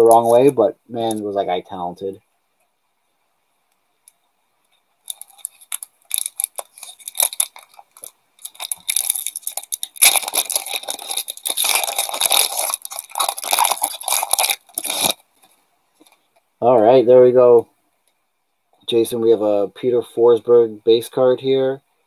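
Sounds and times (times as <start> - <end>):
foil wrapper crinkling and tearing: 0.0 - 1.2, 5.0 - 16.3.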